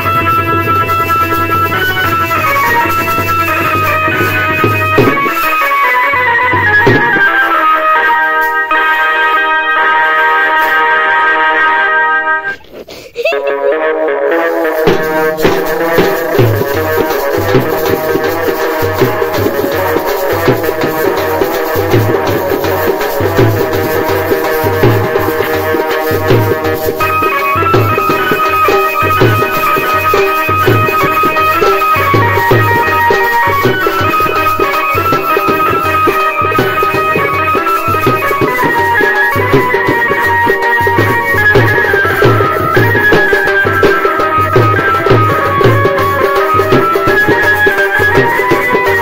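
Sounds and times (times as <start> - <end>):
side drum: 0.0 - 9.0, 14.4 - 49.0
electronic keyboard melody: 0.0 - 12.5.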